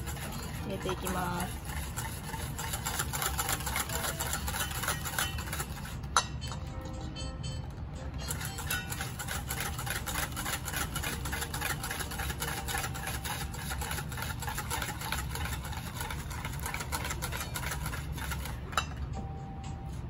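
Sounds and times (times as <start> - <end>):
whisk beating in metal bowl: 0.0 - 6.6, 8.2 - 19.2
low steady hum: 0.0 - 20.0.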